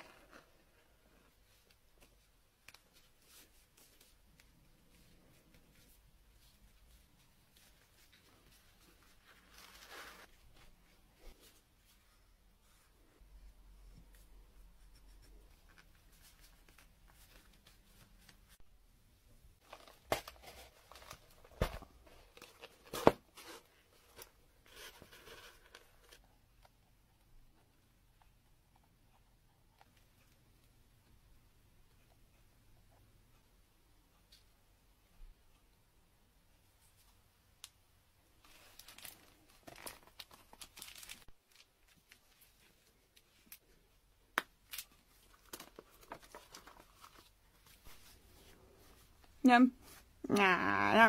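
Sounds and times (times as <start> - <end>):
bubble wrap and paper rustling: 0.0 - 12.8, 19.6 - 26.2, 38.4 - 43.7, 44.6 - 49.3.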